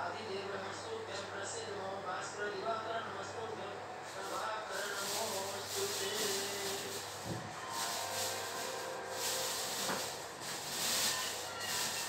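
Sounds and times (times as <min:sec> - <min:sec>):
hissy rubbing swishes: 0:04.2 - 0:12.0.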